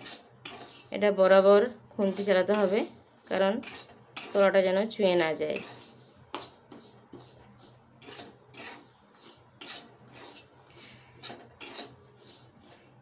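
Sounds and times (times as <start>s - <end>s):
metal spatula scraping a pan: 0.0s - 13.0s
steady high-pitched whine: 0.0s - 13.0s.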